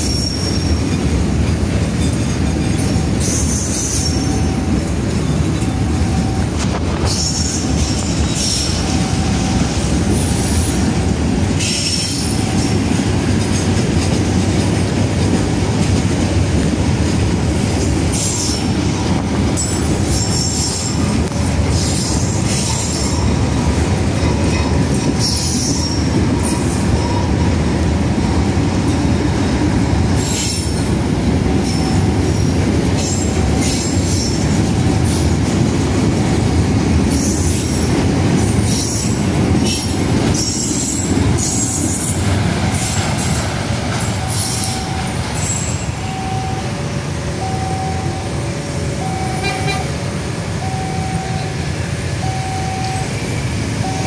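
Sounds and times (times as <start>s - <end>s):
high wheel squeals: 0.0s - 1.0s, 2.0s - 10.9s, 11.6s - 12.8s, 19.6s - 23.6s, 24.3s - 28.4s, 44.0s - 49.9s
train wheels rumbling on rail: 0.0s - 54.0s.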